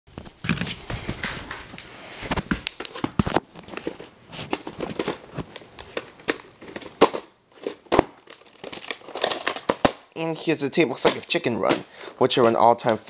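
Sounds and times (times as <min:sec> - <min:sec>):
plastic cases clicking and rustling: 0:02.3 - 0:10.0.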